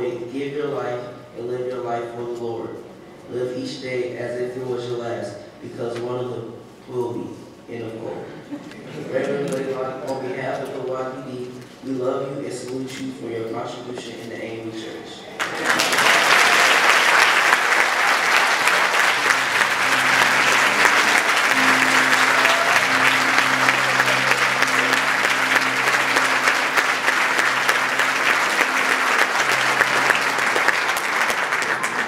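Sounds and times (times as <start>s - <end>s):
congregation applauding: 15.4s - 32.0s
low sustained instrument notes: 18.2s - 32.0s.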